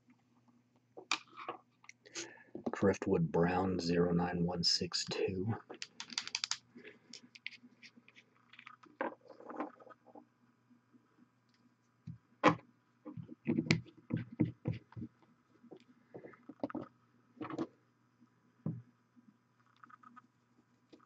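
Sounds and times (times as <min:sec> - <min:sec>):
faint low hum: 0:00.0 - 0:06.0
small clicks and taps: 0:05.7 - 0:07.6.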